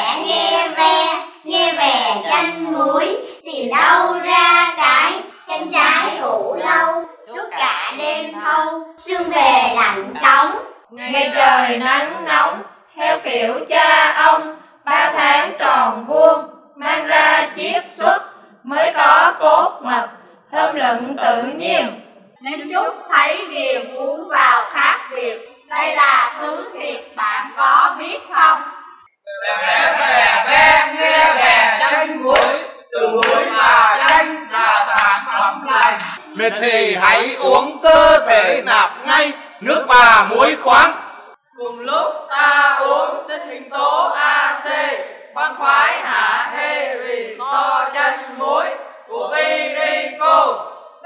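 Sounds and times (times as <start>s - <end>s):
women chanting folk verse: 0.0s - 29.0s, 29.6s - 39.7s, 41.6s - 51.0s
men chanting in unison: 29.4s - 41.0s, 41.6s - 50.8s
sharp percussive beats: 35.8s - 37.8s.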